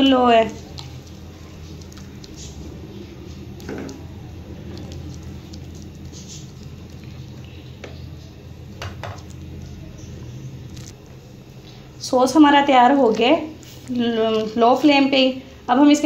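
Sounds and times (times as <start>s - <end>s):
steady low hum: 0.0s - 16.0s
spatula stirring thick sauce: 0.1s - 8.2s.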